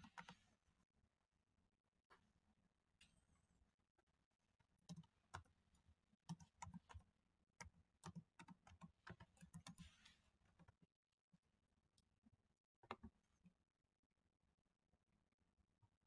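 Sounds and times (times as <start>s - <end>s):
faint keyboard typing: 0.0s - 0.5s, 4.8s - 10.9s.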